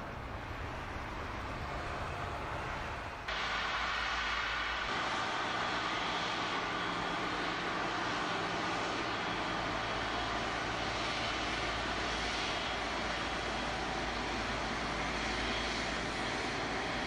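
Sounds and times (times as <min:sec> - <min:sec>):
jet engines rushing in flight: 0:00.0 - 0:17.0.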